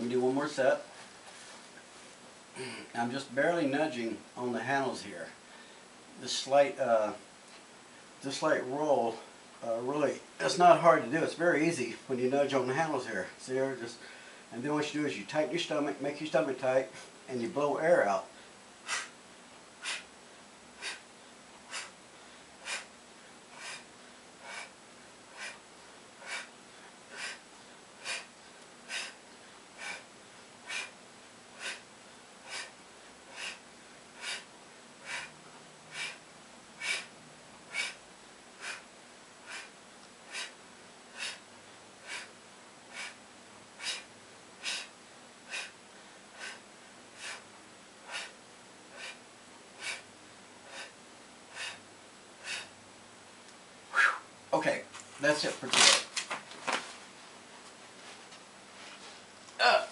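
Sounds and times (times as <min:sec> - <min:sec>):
man's forceful breaths: 0:18.3 - 0:19.2, 0:19.8 - 0:52.8.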